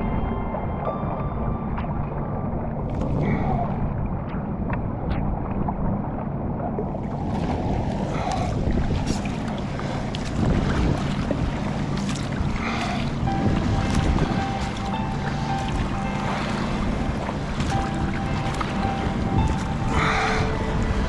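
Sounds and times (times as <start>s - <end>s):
water running along hull: 0.0s - 21.0s
wind rumble on microphone: 0.0s - 21.0s
paddle strokes splashing: 6.9s - 21.0s.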